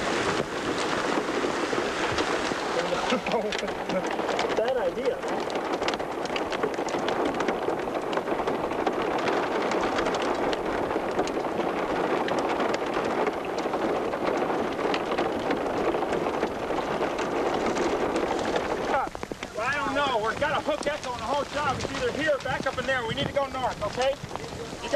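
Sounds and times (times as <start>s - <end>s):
rain falling: 0.0s - 24.9s
sharp raindrop hits: 0.0s - 24.9s.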